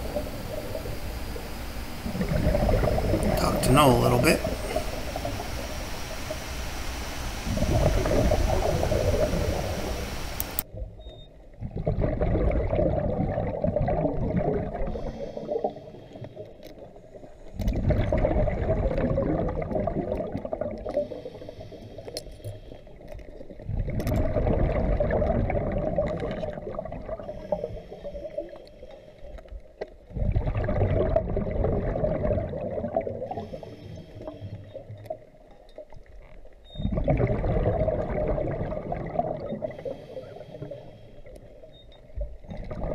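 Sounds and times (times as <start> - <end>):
bubbling exhalations underwater: 2.0 - 5.8, 7.4 - 10.1, 11.6 - 15.6, 17.7 - 21.1, 23.7 - 27.3, 30.1 - 33.5, 36.8 - 40.0, 42.5 - 42.9
regulator hiss: 3.2 - 10.6.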